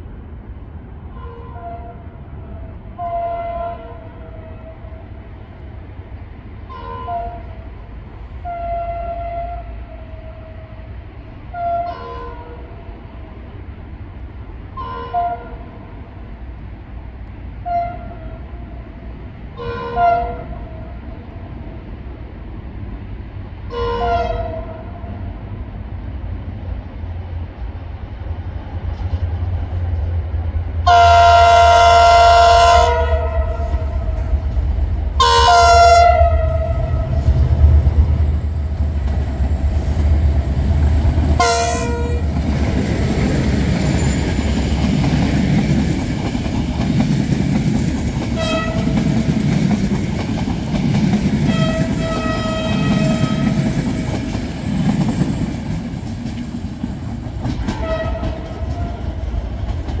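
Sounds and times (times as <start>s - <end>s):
wheels rumbling over rail joints: 0.0s - 60.0s
train horn blasts: 1.1s - 5.0s, 6.7s - 7.6s, 8.4s - 10.7s, 11.5s - 12.8s, 14.8s - 15.7s, 17.6s - 18.7s, 19.6s - 21.0s, 23.7s - 25.1s, 30.8s - 34.3s, 35.2s - 37.3s, 41.4s - 42.4s, 48.4s - 49.1s, 51.5s - 53.7s, 57.7s - 59.1s.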